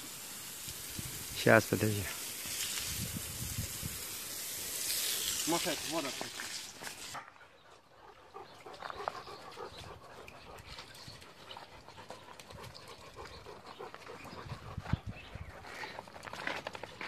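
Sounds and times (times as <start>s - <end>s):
dogs panting: 7.2s - 17.0s.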